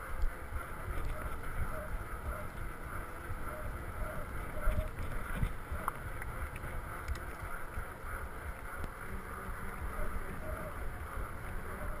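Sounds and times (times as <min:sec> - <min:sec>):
wind buffeting microphone: 0:00.0 - 0:12.0
bike clicks: 0:00.1 - 0:10.0.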